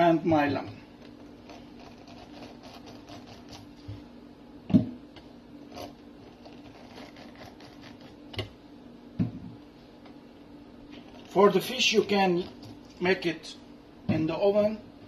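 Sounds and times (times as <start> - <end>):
lemon rasping on citrus juicer: 0.9 - 3.9, 5.6 - 8.4, 10.9 - 13.0.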